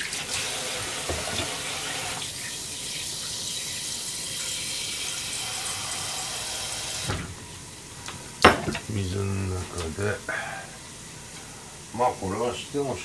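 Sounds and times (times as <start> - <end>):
tap water filling a saucepan: 0.0 - 7.2.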